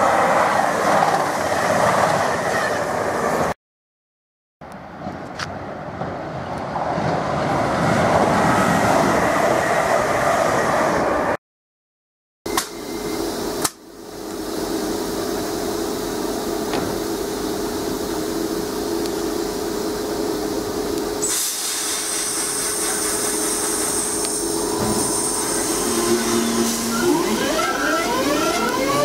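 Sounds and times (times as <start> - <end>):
high whine of traction motors: 12.5 - 29.0
train electric hum: 12.5 - 29.0
train doors thudding shut: 16.7 - 17.0.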